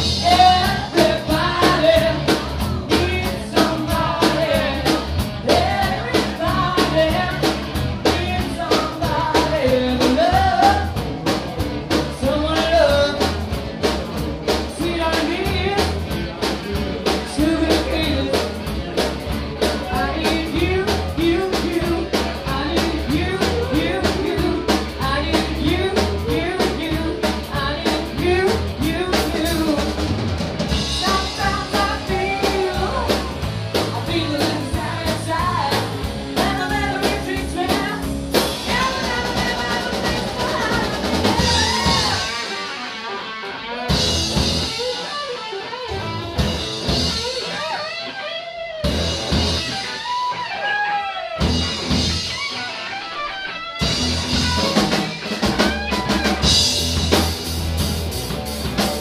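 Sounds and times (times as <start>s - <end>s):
drum kit: 0.0s - 59.0s
guitar: 0.0s - 59.0s
woman singing: 0.1s - 11.0s, 12.1s - 13.3s, 14.7s - 16.0s, 17.2s - 18.6s, 19.8s - 30.0s, 30.8s - 42.6s.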